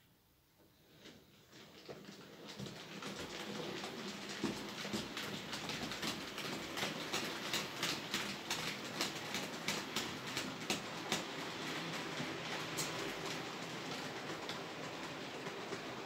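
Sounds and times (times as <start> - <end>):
model train running hum: 2.4 - 16.0
model train wheels clicking: 2.4 - 16.0.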